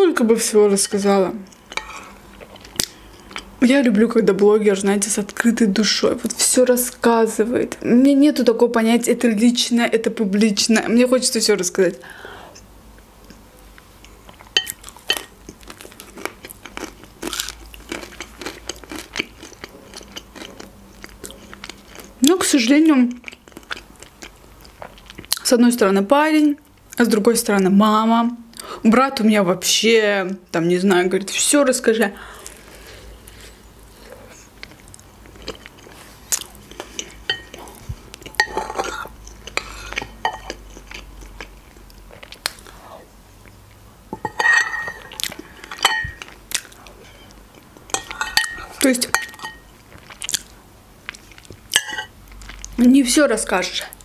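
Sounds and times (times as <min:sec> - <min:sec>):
crunching and chewing crust: 0:14.0 - 0:22.2
spoon clinking on glass bowl: 0:47.9 - 0:49.6, 0:51.8 - 0:52.1.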